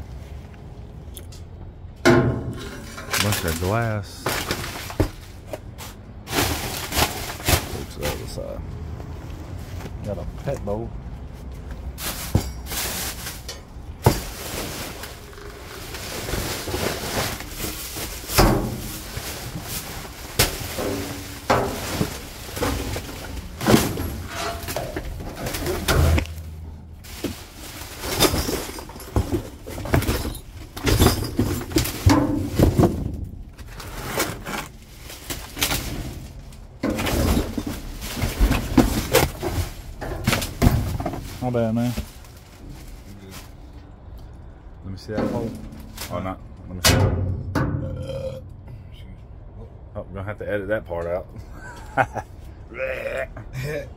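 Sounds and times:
trash knocking and clattering: 1.8 - 8.5, 11.4 - 43.6, 45.0 - 48.0.

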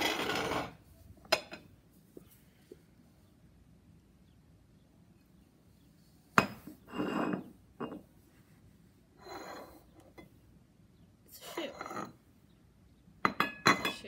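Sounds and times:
objects knocking on hard surface: 0.0 - 0.8.

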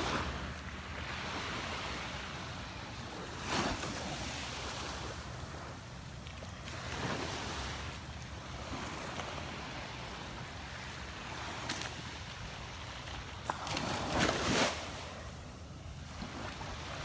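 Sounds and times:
small waves washing up sand: 0.0 - 17.0.

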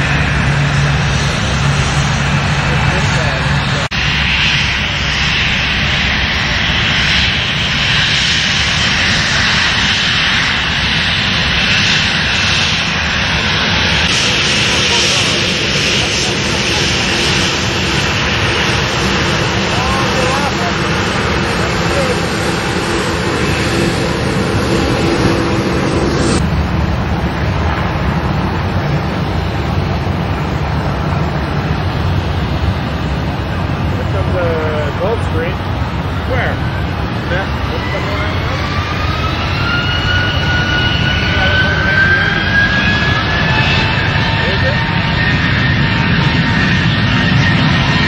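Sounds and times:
jet engines rumbling: 0.0 - 48.0.

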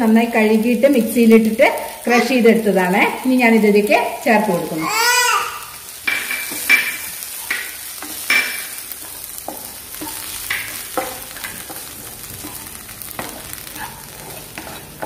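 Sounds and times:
light sizzle: 0.0 - 15.0
wooden spatula scraping a pan: 6.1 - 15.0.

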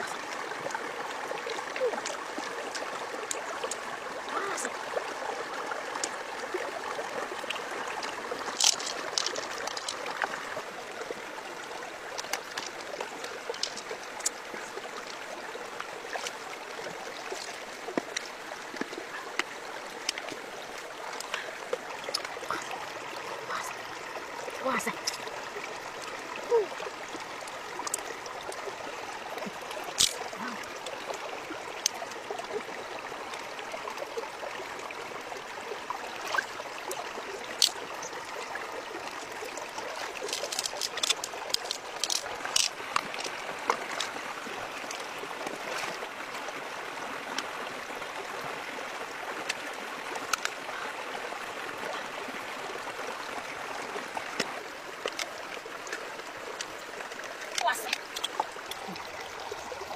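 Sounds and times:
stream running over rocks: 0.0 - 59.9
clicks of shells being handled: 8.5 - 10.1, 40.0 - 44.2.

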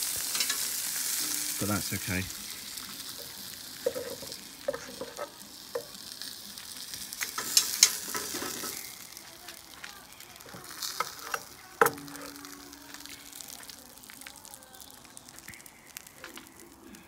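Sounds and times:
spatula tapping grill bars: 0.0 - 1.7, 2.4 - 16.4
chicken sizzling over charcoal: 0.0 - 17.0.

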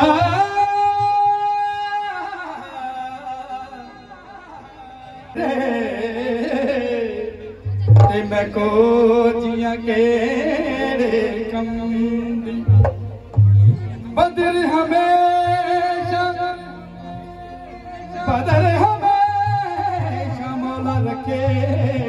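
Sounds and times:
man singing into microphone: 0.0 - 22.0
band accompaniment: 4.6 - 22.0.

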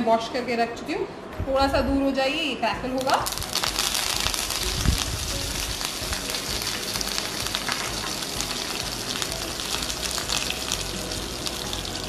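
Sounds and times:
spices sizzling in hot oil: 3.0 - 12.0.

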